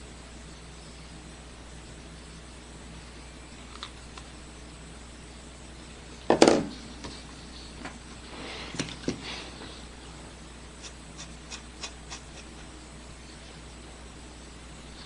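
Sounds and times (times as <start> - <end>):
pen nib scratching on paper: 10.8 - 12.7.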